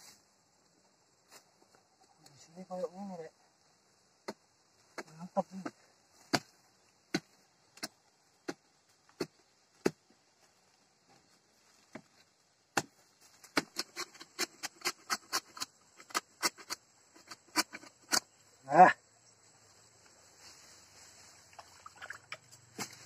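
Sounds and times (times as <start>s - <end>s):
metal bar striking soil and roots: 11.9s - 18.4s, 21.6s - 23.0s.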